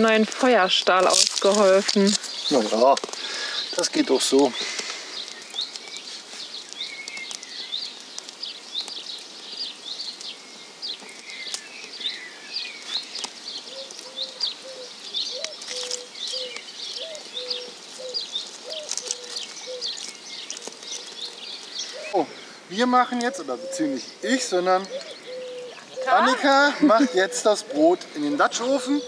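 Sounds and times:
campfire crackles: 0.0s - 29.0s
songbirds chirping: 0.0s - 29.0s
dove cooing: 13.5s - 29.0s.

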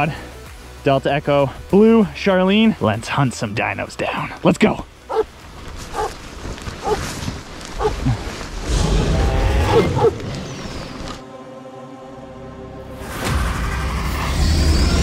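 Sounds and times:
dogs yelping and whining: 5.1s - 5.3s, 5.9s - 6.2s, 6.8s - 7.0s, 7.8s - 8.1s, 9.7s - 10.2s.

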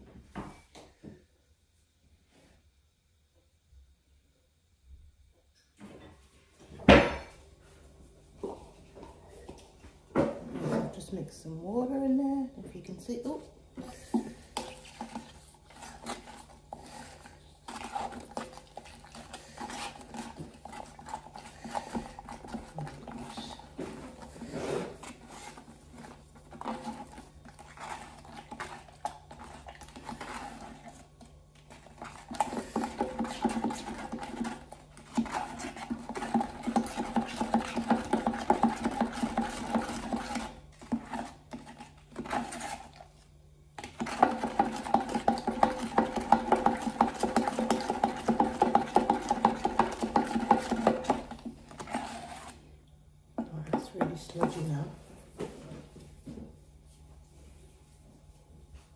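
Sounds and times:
stirrer scraping wet paste: 12.8s - 52.8s, 53.4s - 55.0s.

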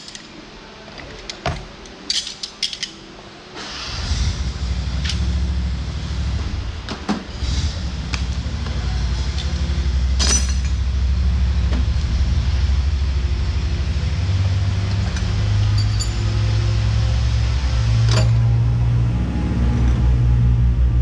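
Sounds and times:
steady low hum: 3.0s - 21.0s
metal clinks of tools: 15.2s - 16.3s.

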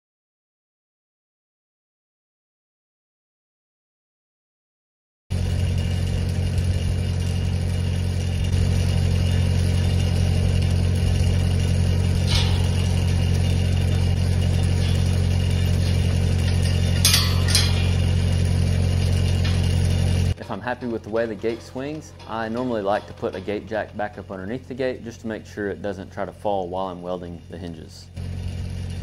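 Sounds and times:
engine idling: 5.3s - 29.0s
metal gate clanking: 5.8s - 27.0s.

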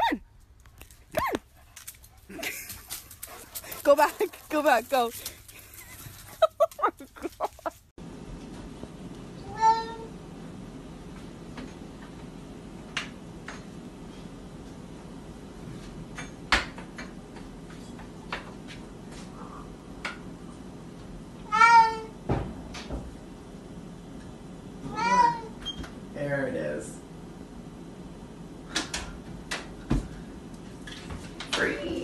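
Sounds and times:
cat meowing: 9.5s - 10.1s, 21.5s - 22.1s, 24.9s - 25.5s.

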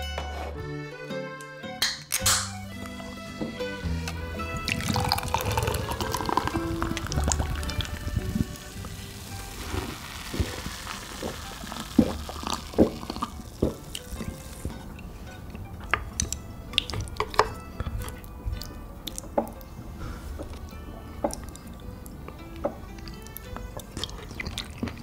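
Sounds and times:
background music: 0.0s - 25.0s
wet sticky eating smacks: 15.8s - 19.7s, 22.3s - 25.0s.

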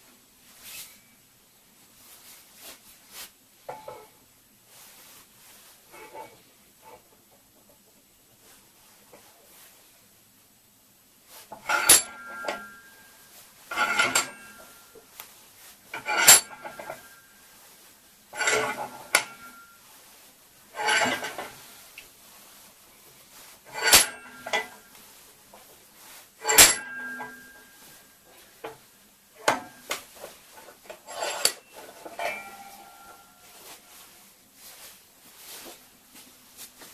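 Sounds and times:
steel clanks at a bench vise: 11.5s - 13.0s, 13.7s - 14.8s, 15.9s - 17.2s, 18.3s - 19.7s, 20.8s - 21.6s, 23.7s - 24.8s, 26.4s - 27.8s, 29.4s - 33.3s.

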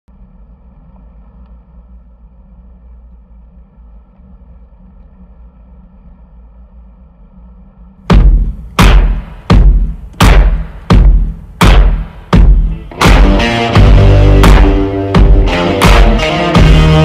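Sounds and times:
heavy drum hits: 8.1s - 17.0s.

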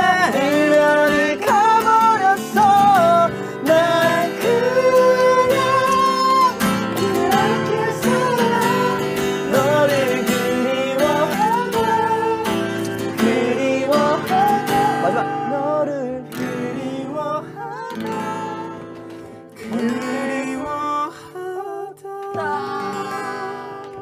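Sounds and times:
man singing: 0.0s - 24.0s
strummed acoustic guitar: 0.0s - 24.0s.

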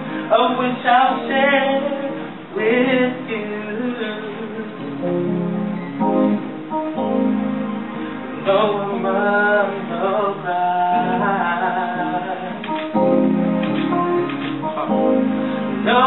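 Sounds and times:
person singing: 0.0s - 5.0s, 8.4s - 13.1s, 14.6s - 16.0s
piano chords: 0.0s - 16.0s.

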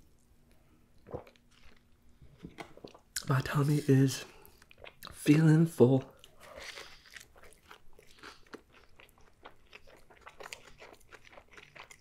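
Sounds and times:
person chewing flatbread: 1.0s - 3.0s, 4.4s - 5.1s, 6.2s - 12.0s.

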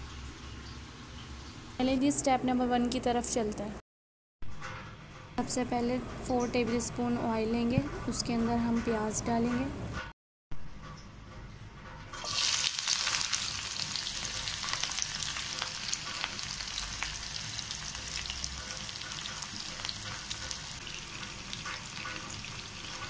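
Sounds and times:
onions sizzling in hot oil: 12.2s - 23.0s.

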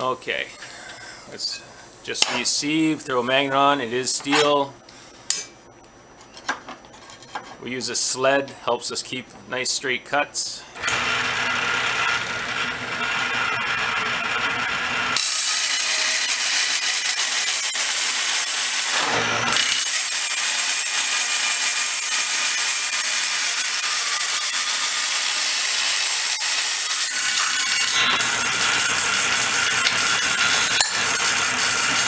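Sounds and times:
table saw running: 10.8s - 32.0s
saw blade cutting steel: 15.2s - 32.0s.

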